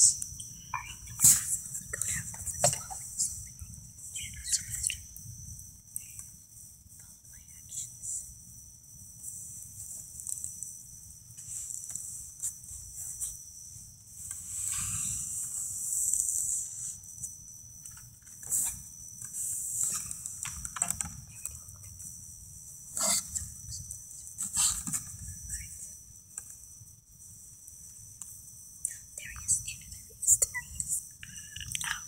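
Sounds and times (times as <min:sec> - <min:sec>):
night insects chirring: 0:00.0 - 0:32.0.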